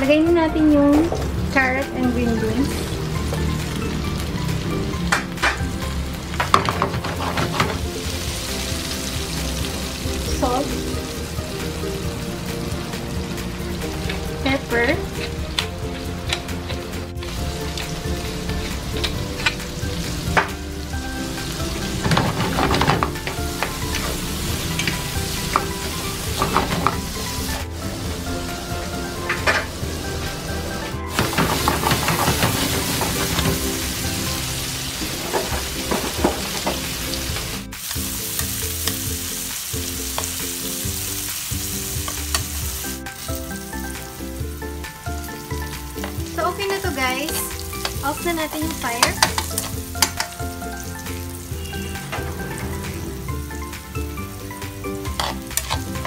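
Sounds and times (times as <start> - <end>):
vegetables sizzling in a pan: 0.8 - 56.0
tongs scraping vegetables: 55.1 - 56.0.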